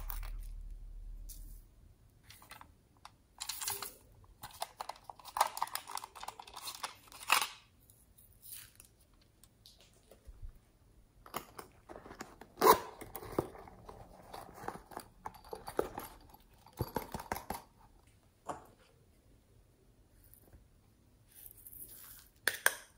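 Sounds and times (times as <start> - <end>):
plastic toys clicking and rustling: 2.3 - 7.8.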